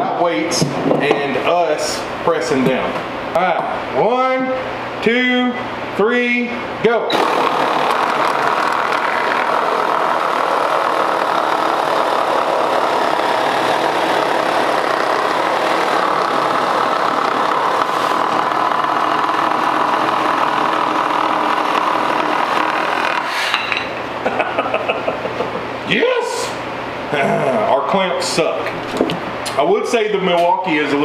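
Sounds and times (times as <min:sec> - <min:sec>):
reciprocating saws cutting wood: 0:07.1 - 0:23.6.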